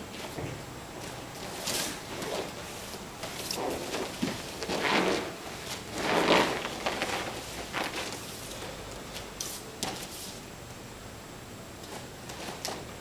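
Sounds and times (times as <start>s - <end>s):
cloth rustling: 1.0s - 10.4s.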